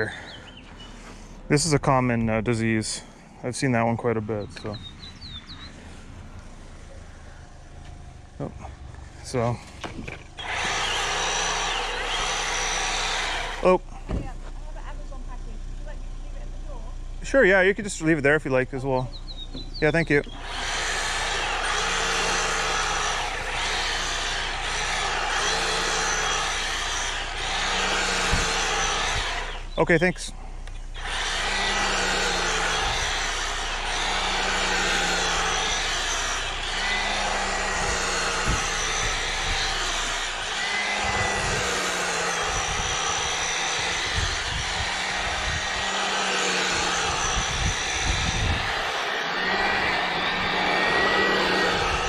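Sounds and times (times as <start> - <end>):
power brush sweeping lawn: 20.3 - 29.7, 31.0 - 52.0.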